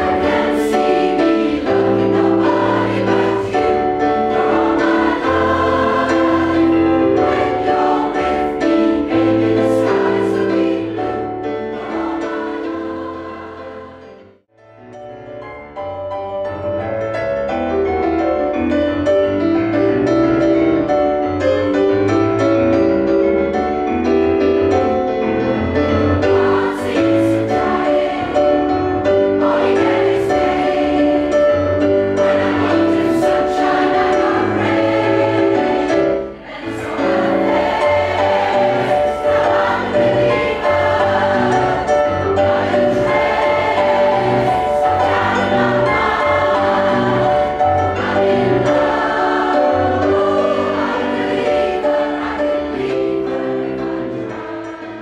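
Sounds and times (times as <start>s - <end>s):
mixed choir singing: 0.0s - 14.4s, 26.0s - 55.0s
keyboard accompaniment: 0.0s - 55.0s.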